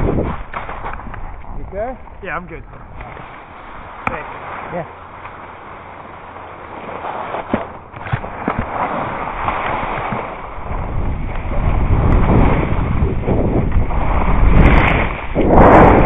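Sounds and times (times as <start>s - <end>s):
skis sliding on snow: 0.0s - 16.0s
wind buffeting microphone: 0.0s - 16.0s.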